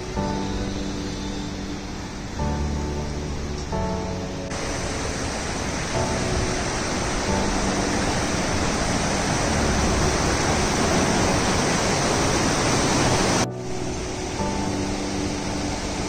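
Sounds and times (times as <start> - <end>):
dull noise: 0.0 - 16.0
faint music: 0.0 - 16.0
rushing river: 0.0 - 16.0.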